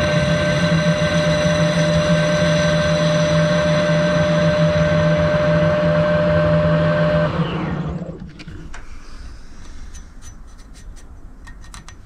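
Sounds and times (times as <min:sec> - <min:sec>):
metal lathe whining: 0:00.0 - 0:08.2.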